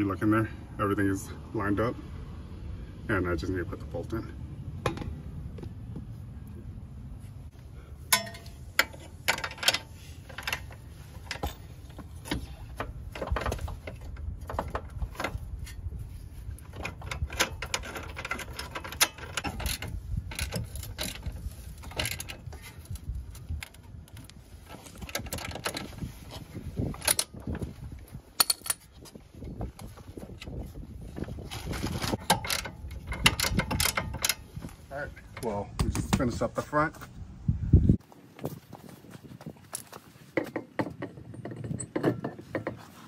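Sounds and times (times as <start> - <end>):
metal clinks of tool and bolt: 8.1 - 11.7, 16.7 - 23.9, 28.4 - 28.9, 32.2 - 34.5.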